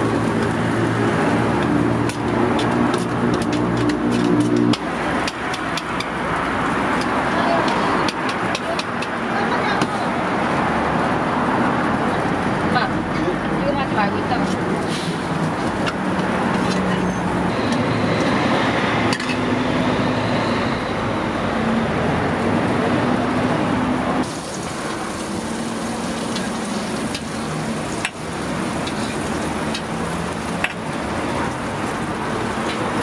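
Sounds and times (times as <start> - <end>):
street traffic: 0.0 - 33.0
food sizzling on a griddle: 24.2 - 33.0.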